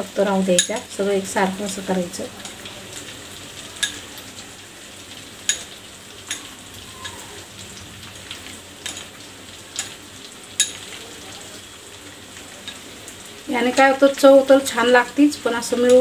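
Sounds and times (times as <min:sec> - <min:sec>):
curry boiling with hiss: 0:00.0 - 0:16.0
spoon clinking against steel bowl: 0:00.5 - 0:00.9, 0:03.8 - 0:04.1, 0:05.4 - 0:07.2, 0:08.8 - 0:11.0.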